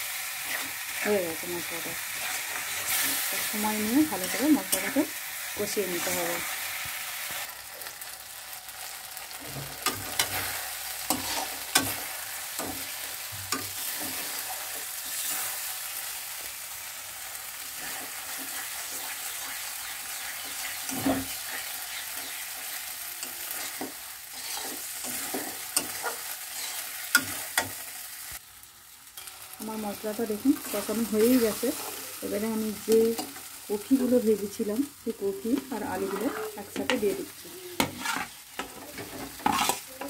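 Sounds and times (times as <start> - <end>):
spice paste sizzling in oil: 0.0 - 40.0
metal spatula scraping pan: 9.4 - 15.6, 17.7 - 27.8, 35.8 - 37.2, 37.8 - 40.0.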